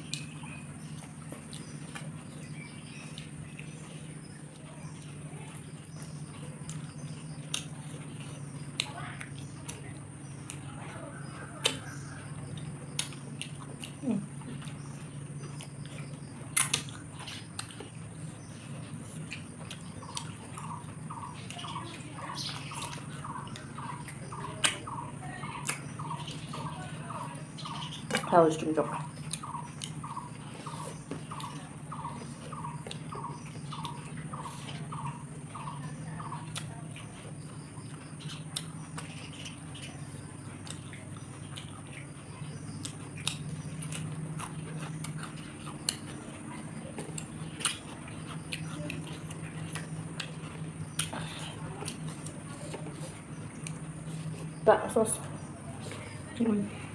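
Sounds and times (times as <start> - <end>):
person chewing: 0.0 - 10.7, 11.6 - 28.2, 29.2 - 35.8, 36.4 - 54.6
steady low hum: 0.0 - 56.9
faint repeating chirp: 18.0 - 44.4.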